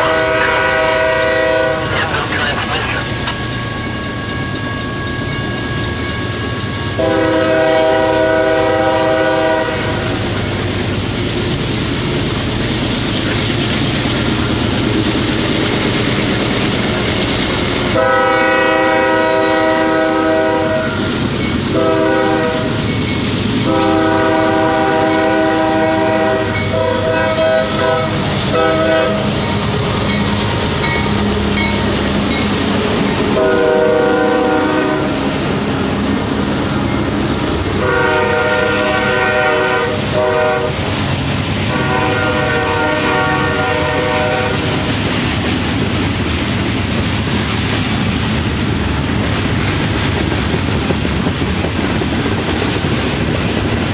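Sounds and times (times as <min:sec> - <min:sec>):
locomotive air horn blasts: 0:00.0 - 0:01.9, 0:06.9 - 0:10.1, 0:17.9 - 0:21.1, 0:21.7 - 0:22.8, 0:23.6 - 0:29.4, 0:33.3 - 0:35.2, 0:37.8 - 0:40.9, 0:41.7 - 0:44.6
train wheel clatter: 0:00.0 - 0:08.2, 0:10.4 - 0:18.0, 0:20.5 - 0:34.1, 0:43.5 - 0:53.9
train rumble: 0:00.0 - 0:53.9.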